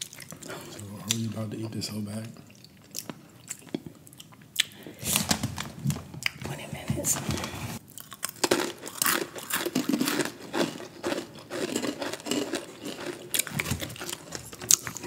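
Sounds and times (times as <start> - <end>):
crunchy snack being chewed: 7.8 - 15.0
snack bag crinkling: 7.8 - 15.0.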